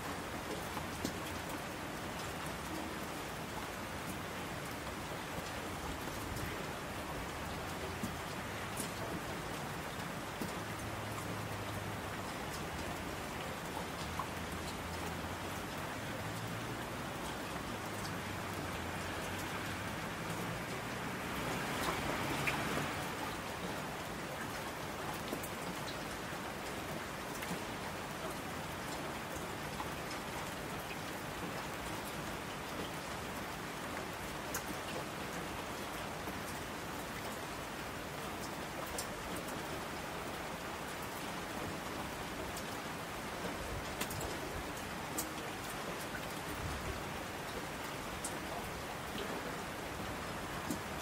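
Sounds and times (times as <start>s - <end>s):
steady rain falling: 0.0s - 51.0s
raindrops ticking: 7.3s - 32.1s, 34.3s - 37.4s, 38.2s - 39.8s, 40.9s - 46.6s, 47.3s - 51.0s.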